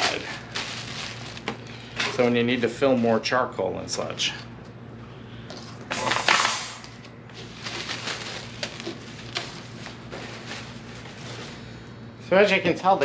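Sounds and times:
plastic bag crinkling: 0:00.0 - 0:01.7, 0:06.0 - 0:11.6.

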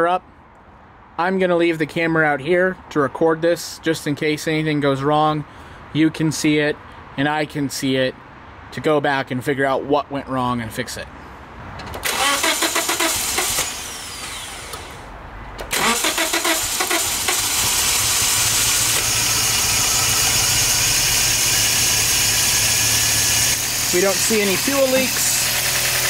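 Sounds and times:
car engine cranking: 0:11.8 - 0:26.0
car engine idling: 0:12.0 - 0:26.0.

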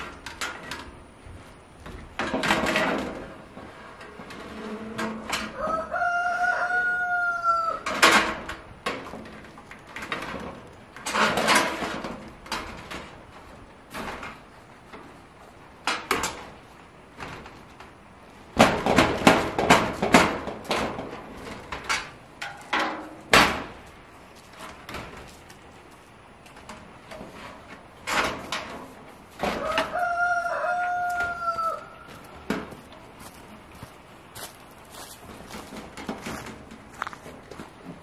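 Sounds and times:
rooster crowing: 0:05.4 - 0:07.9, 0:29.5 - 0:32.3.

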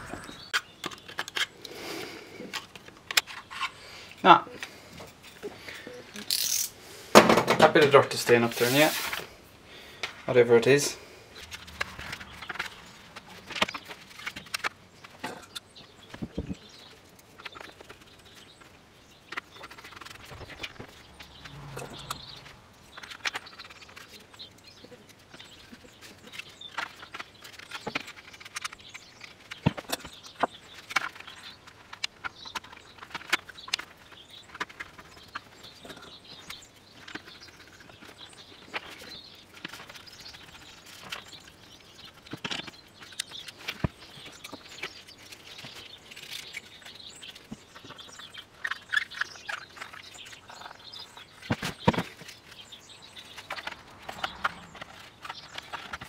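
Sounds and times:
plastic helmet parts clicking: 0:25.1 - 0:41.3, 0:41.9 - 0:56.0.

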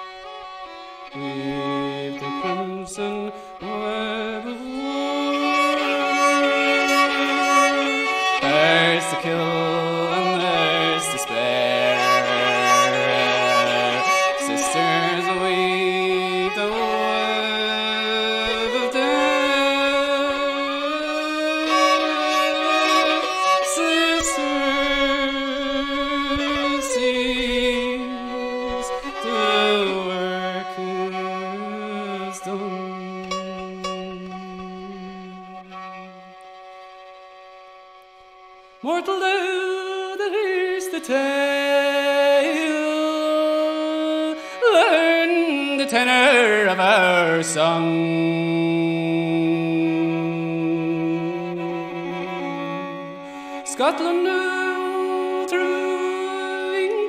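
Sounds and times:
fiddle playing held notes: 0:00.0 - 0:57.0
low sustained notes: 0:22.0 - 0:37.2.

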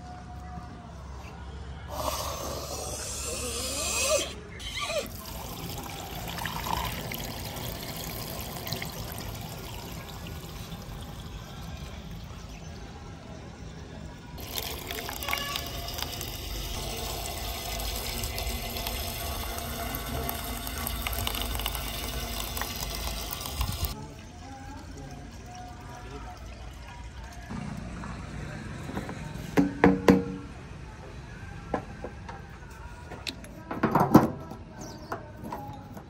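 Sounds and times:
liquid pouring into plastic funnel: 0:05.1 - 0:11.9, 0:14.4 - 0:27.3.

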